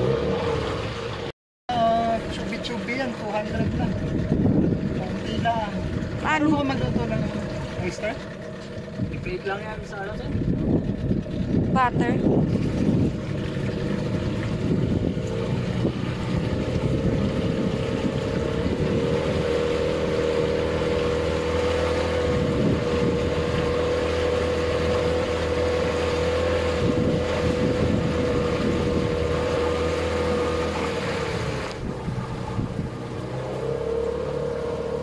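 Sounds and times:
motorboat engine droning: 0:00.0 - 0:35.0
wind on microphone: 0:03.6 - 0:05.1, 0:10.2 - 0:33.7.

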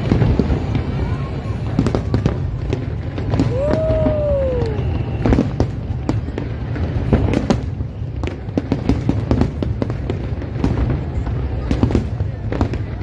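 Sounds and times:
fireworks bangs and crackles: 0:00.0 - 0:13.0.

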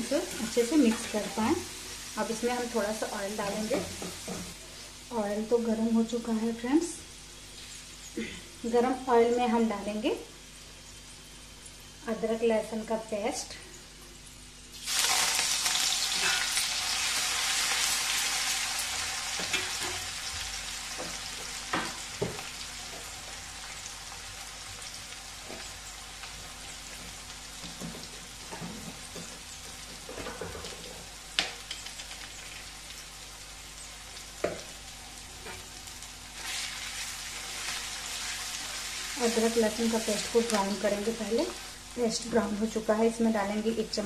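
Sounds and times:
paste sizzling in hot oil: 0:14.6 - 0:29.6, 0:30.8 - 0:42.8.

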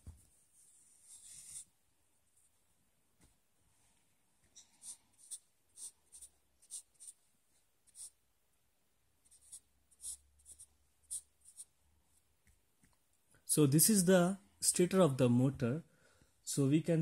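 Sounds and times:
marker scratching on paper: 0:01.0 - 0:01.7, 0:04.8 - 0:07.2, 0:07.8 - 0:08.2, 0:09.2 - 0:11.8.

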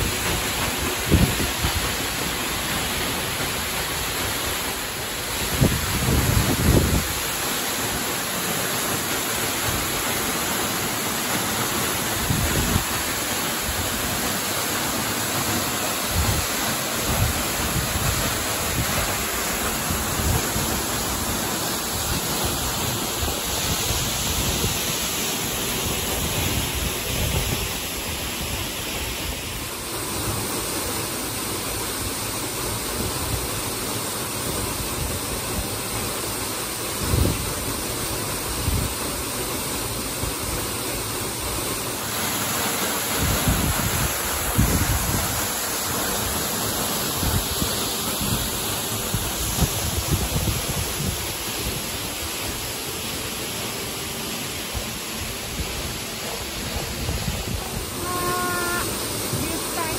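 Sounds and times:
waterfall rushing: 0:00.0 - 0:59.9
wind buffeting microphone: 0:43.2 - 0:45.5, 0:49.1 - 0:51.8.

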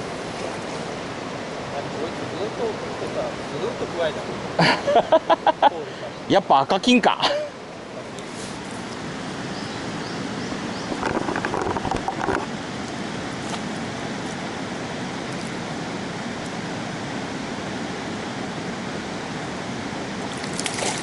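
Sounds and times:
river water rushing: 0:00.0 - 0:21.0
water splashing: 0:20.2 - 0:21.0.

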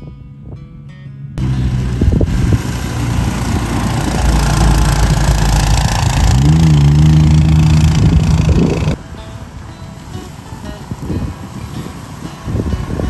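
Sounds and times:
truck engine running: 0:01.4 - 0:09.0
steady hiss of grass: 0:01.4 - 0:13.0.

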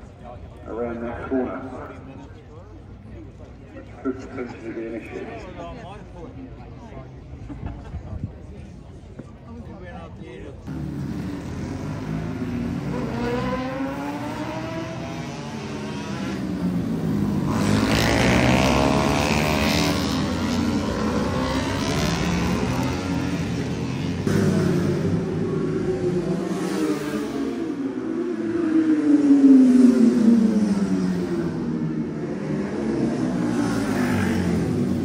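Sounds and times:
racing motorcycles passing: 0:10.7 - 0:35.0.

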